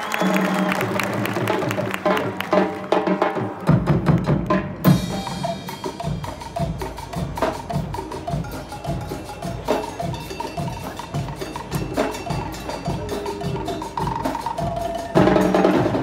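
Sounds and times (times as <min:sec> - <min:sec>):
marching band drums: 0:00.1 - 0:16.0.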